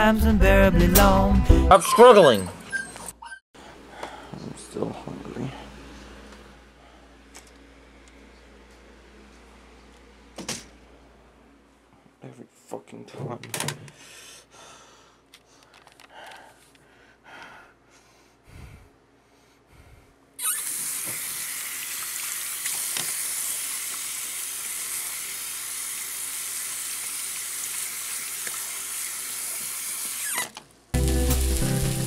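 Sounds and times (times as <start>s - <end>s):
faint handling sounds: 15.2s - 16.8s
tap water running into sink: 20.7s - 30.2s.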